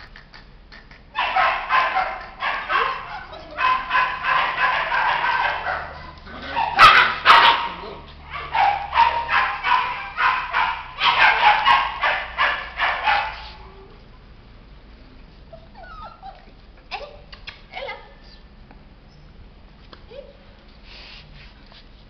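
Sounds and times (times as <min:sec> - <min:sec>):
dog barking: 0:01.2 - 0:13.6.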